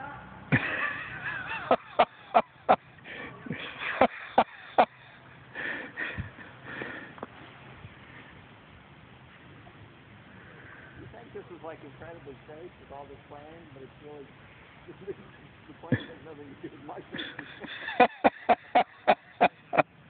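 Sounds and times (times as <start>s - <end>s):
people laughing or whooping: 0.0s - 5.1s.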